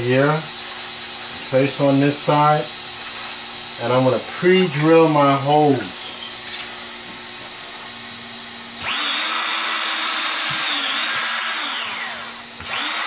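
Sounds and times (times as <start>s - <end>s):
cordless drill drilling wood: 8.8s - 13.0s.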